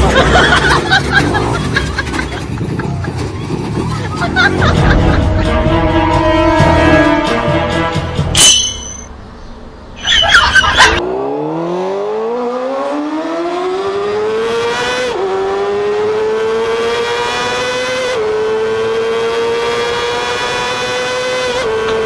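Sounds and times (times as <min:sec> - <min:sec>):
car engine accelerating: 0:11.0 - 0:22.0.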